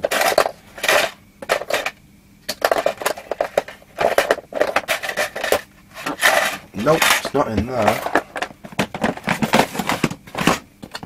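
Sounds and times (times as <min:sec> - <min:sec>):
tools rattling in plastic box: 0:02.5 - 0:11.0.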